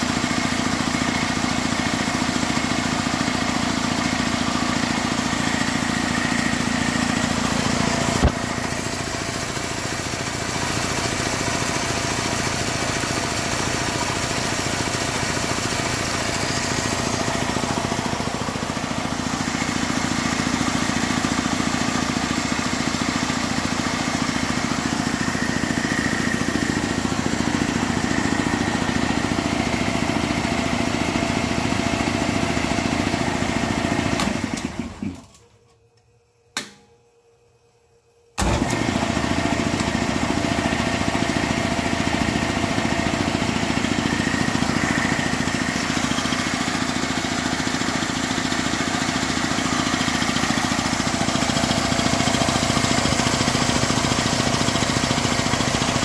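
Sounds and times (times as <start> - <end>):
piston compressor running: 0.0 - 35.3, 38.4 - 56.0
compressor click: 34.2 - 37.0.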